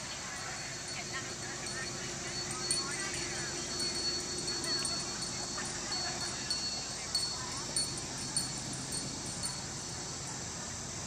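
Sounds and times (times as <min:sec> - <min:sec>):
insect chorus: 0:00.0 - 0:11.0.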